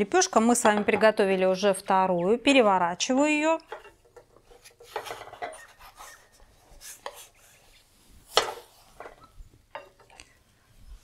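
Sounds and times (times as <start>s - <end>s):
wooden spatula scraping metal pan: 3.7s - 6.4s.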